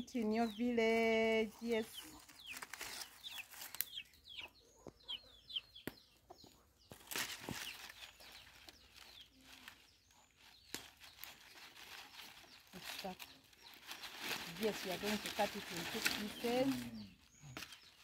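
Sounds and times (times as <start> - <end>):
chickens peeping faintly: 0.0 - 18.0
dry leaves rustling: 1.9 - 4.2, 6.9 - 18.0.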